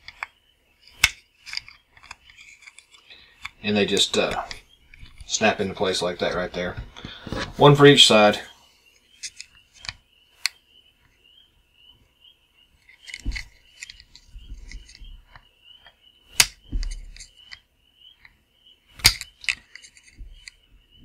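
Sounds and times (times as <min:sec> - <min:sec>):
plastic toy parts clicking: 0:00.9 - 0:05.2, 0:12.8 - 0:15.4, 0:19.0 - 0:20.6.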